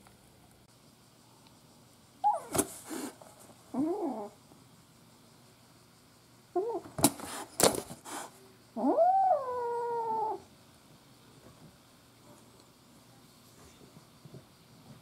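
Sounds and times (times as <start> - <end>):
kitten yowling: 2.2 - 2.5, 8.8 - 10.5
kitten call: 2.2 - 2.6.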